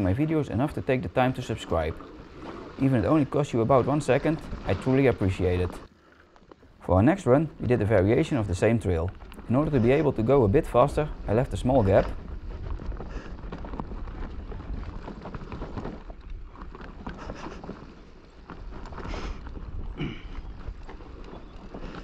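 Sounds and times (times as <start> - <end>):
bike rattling over bumps: 0.0 - 22.0
bike tyres rolling on dirt: 0.0 - 22.0
wind rumbling on microphone: 7.5 - 22.0.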